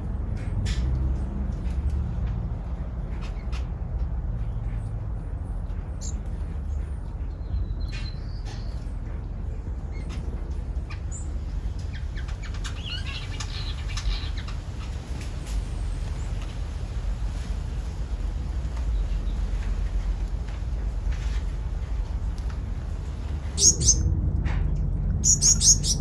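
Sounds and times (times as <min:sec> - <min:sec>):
steady low rumble: 0:00.0 - 0:26.0
finches chirping: 0:23.6 - 0:24.1, 0:25.2 - 0:26.0.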